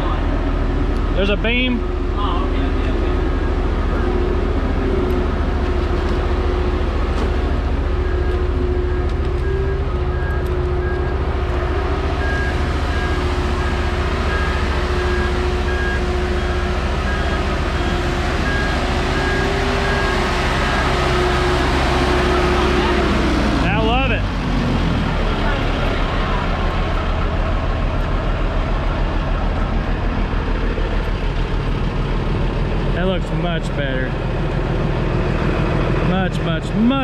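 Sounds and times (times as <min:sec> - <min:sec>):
boat hoist engine rumbling: 0:00.0 - 0:37.0
high warning beeps: 0:07.6 - 0:22.9.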